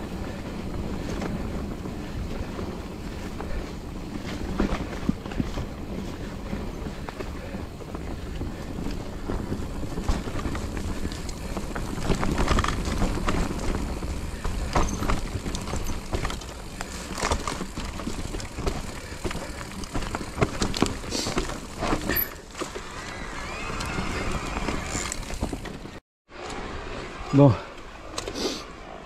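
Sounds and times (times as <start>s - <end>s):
wind noise on microphone: 0.0s - 21.9s
bike knocks and rattles: 0.0s - 23.0s, 24.0s - 26.0s
tyres rolling on dirt: 0.0s - 29.0s.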